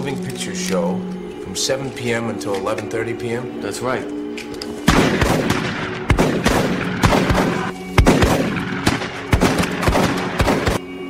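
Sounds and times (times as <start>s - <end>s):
music: 0.0s - 11.0s
shotgun blasts echoing: 4.9s - 11.0s.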